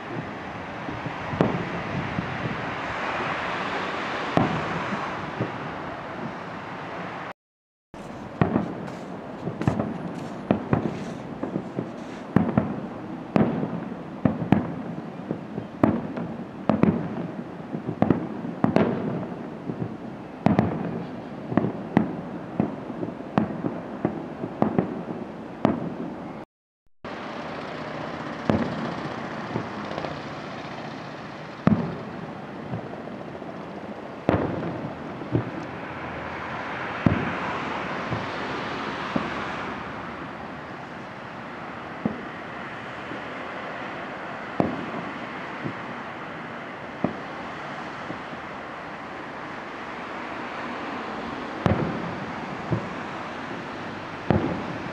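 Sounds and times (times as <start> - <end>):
firework shells bursting: 8.0 - 12.7.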